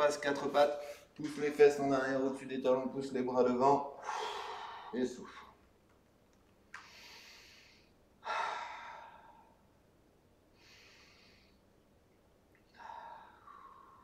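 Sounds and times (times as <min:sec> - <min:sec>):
man breathing deeply: 0:04.0 - 0:05.6, 0:06.8 - 0:09.6, 0:10.5 - 0:11.7, 0:12.7 - 0:14.0.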